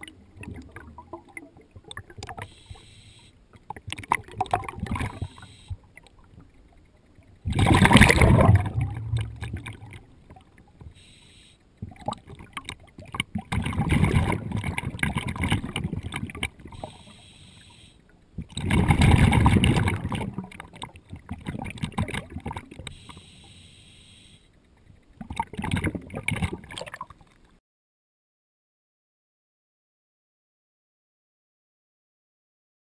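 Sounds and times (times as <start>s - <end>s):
exhaled bubbles underwater: 0.0s - 2.9s, 3.5s - 11.0s, 11.8s - 17.4s, 18.1s - 23.1s, 25.2s - 27.3s
regulator hiss: 2.4s - 3.4s, 5.2s - 5.9s, 10.9s - 11.6s, 16.8s - 18.1s, 22.9s - 24.6s.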